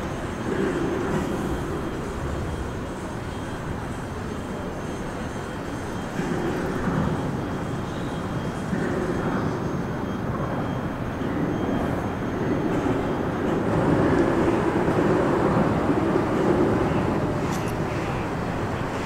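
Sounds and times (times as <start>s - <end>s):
highway traffic rushing: 11.0s - 19.0s.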